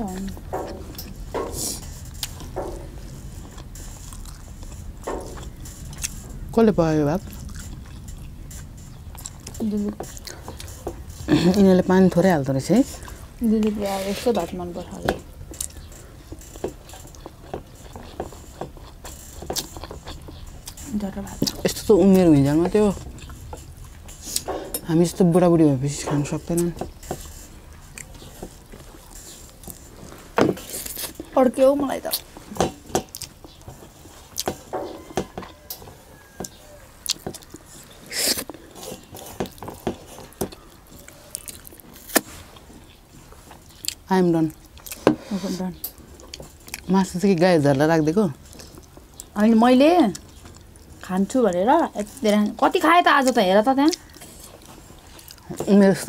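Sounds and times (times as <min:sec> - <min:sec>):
chewing with mouth smacks: 0:00.1 - 0:06.5, 0:07.2 - 0:11.6, 0:15.2 - 0:22.3, 0:26.5 - 0:45.1, 0:45.8 - 0:51.3, 0:51.9 - 0:56.0
breathy hiss: 0:01.5 - 0:02.1
chewing and lip smacks: 0:03.4 - 0:06.5, 0:07.2 - 0:11.2, 0:35.5 - 0:45.0, 0:53.2 - 0:55.6.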